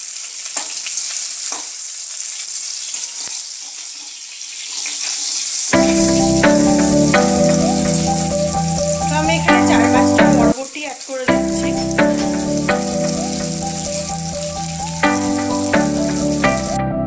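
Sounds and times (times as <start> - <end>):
vegetables sizzling in oil: 0.0 - 16.8
background music: 5.8 - 10.5, 11.3 - 17.0.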